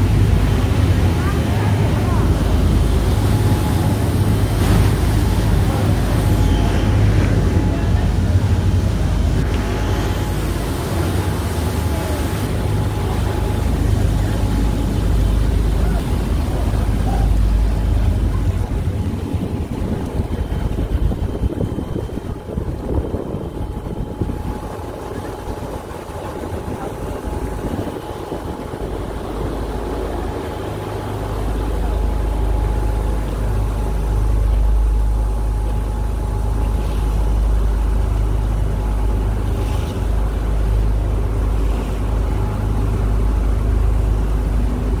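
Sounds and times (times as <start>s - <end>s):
wind on microphone: 0.0s - 32.8s
motorboat engine rumbling: 0.0s - 45.0s
water rushing past hull: 0.0s - 45.0s.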